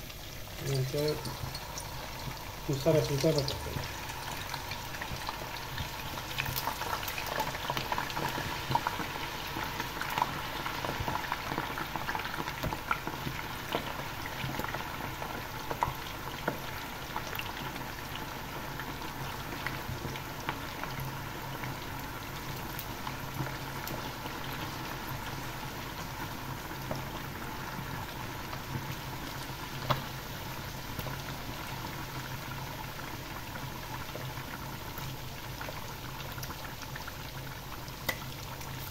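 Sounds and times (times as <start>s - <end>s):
potatoes deep-frying in hot oil: 0.0s - 38.9s.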